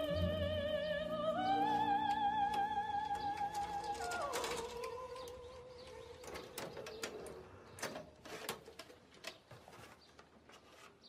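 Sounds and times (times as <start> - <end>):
opera singing: 0.0 - 6.5.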